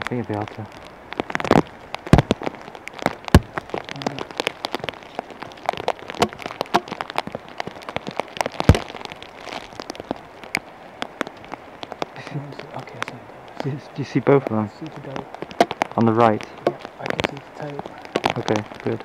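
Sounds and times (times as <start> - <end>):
rain pattering: 0.0 - 19.0
loud knocks: 3.3 - 3.6.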